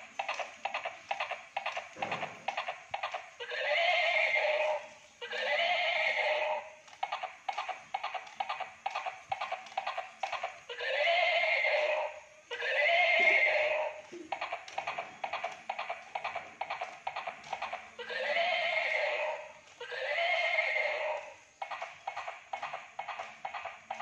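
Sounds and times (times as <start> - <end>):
electronic hoofbeat clip-clops: 0.0 - 3.4, 6.8 - 10.7, 13.9 - 18.0, 21.4 - 24.0
electronic horse neigh: 0.0 - 24.0.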